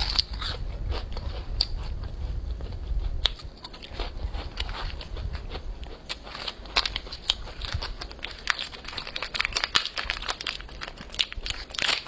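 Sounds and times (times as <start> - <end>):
plastic wrapper crinkling: 6.4 - 12.0.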